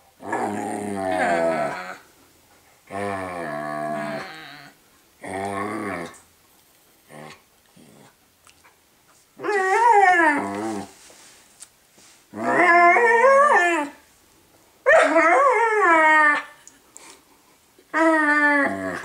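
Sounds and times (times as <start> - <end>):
puppy howling: 0.9 - 2.1.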